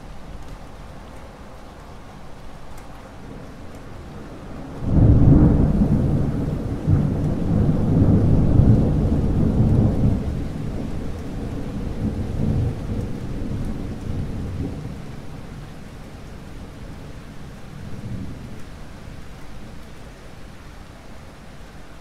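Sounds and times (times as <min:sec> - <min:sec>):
steady rain: 0:00.0 - 0:22.0
thunder rumbling: 0:04.6 - 0:15.6.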